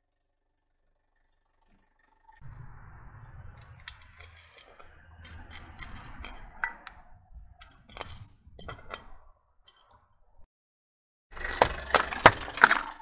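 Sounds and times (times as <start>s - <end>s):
low steady rumble: 2.4s - 9.3s
candies clattering onto asphalt: 11.4s - 13.0s.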